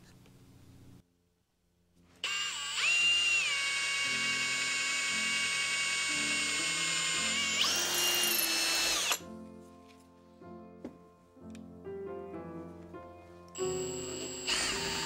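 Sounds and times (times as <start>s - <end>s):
electric drill whining: 2.2s - 9.2s, 13.6s - 15.0s.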